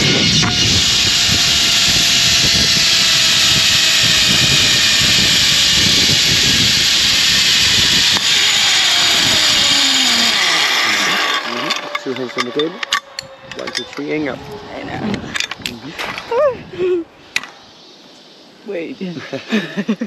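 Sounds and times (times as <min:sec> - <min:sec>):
zipline pulleys whirring on cable: 0:00.0 - 0:15.0
rushing wind: 0:00.0 - 0:19.8.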